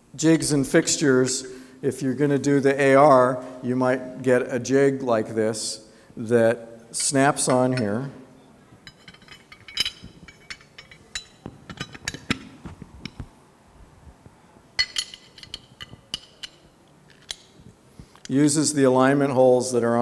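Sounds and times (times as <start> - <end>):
metal parts clicking and clinking: 7.0 - 8.0, 8.8 - 13.3, 14.8 - 18.4.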